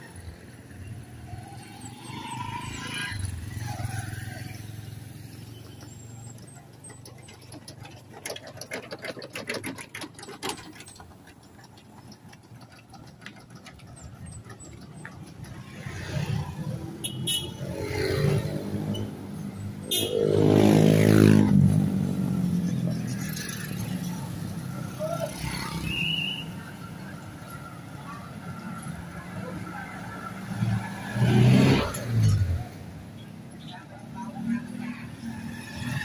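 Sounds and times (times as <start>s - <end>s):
road traffic: 0.0s - 36.0s
motorcycle engine passing: 1.2s - 25.9s
quick rattling clicks: 5.8s - 16.1s.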